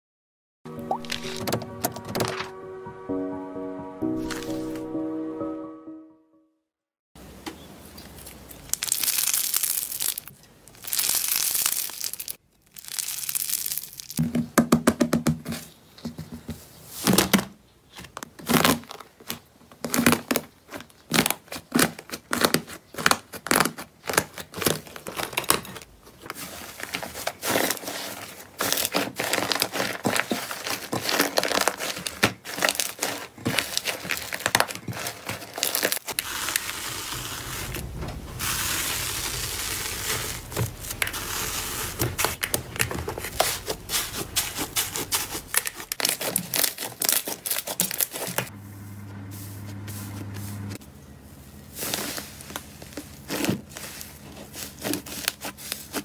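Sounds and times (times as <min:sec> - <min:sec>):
slime crunching and crackling: 0:08.1 - 0:14.2, 0:18.4 - 0:25.5, 0:26.2 - 0:48.5, 0:51.7 - 0:56.0.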